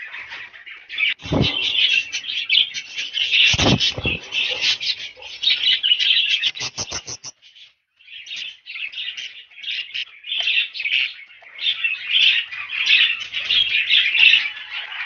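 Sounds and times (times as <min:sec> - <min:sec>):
budgerigars chirping and chattering: 0:00.0 - 0:15.0
quick run of clicks: 0:06.5 - 0:07.3.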